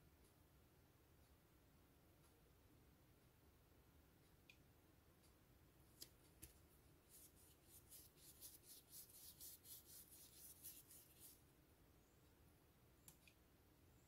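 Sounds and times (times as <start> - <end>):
paintbrush stroking paper: 7.0 - 11.4.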